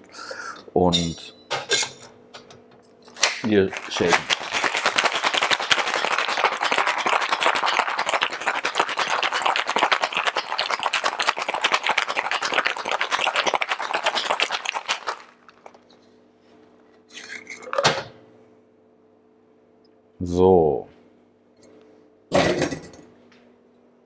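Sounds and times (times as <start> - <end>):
ice rattling in cocktail shaker: 3.7 - 15.8
shaker clattering: 3.7 - 15.8.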